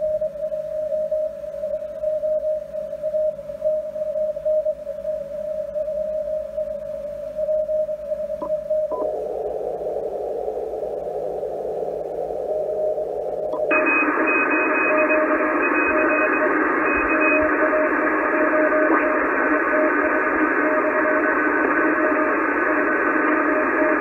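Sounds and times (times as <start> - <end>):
faint morse tones: 0.0 - 11.4, 12.0 - 21.3
short beeps: 8.4 - 9.1, 13.5 - 17.5
radio band hiss: 8.4 - 24.0.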